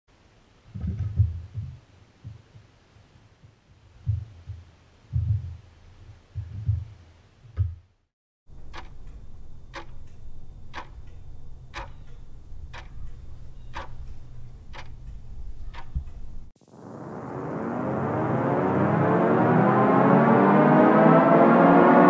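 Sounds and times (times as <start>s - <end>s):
deep irregular thuds: 4.0s - 5.6s, 6.3s - 7.9s
steady ticking: 8.5s - 16.5s
low hum: 8.5s - 22.0s.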